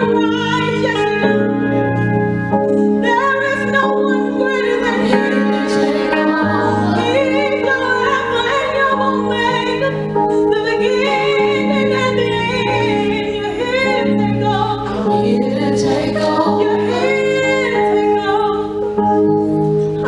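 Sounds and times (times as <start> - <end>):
held instrumental chords: 0.0 - 20.0
women singing gospel song: 3.1 - 18.6.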